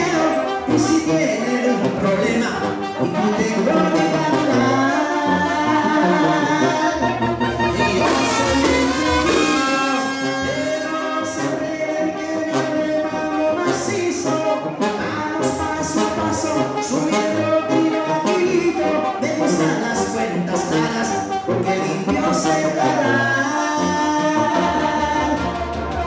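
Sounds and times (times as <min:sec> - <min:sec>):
brass band playing: 0:00.0 - 0:26.0
person singing into microphone: 0:00.0 - 0:26.0
bass drum: 0:07.6 - 0:10.0.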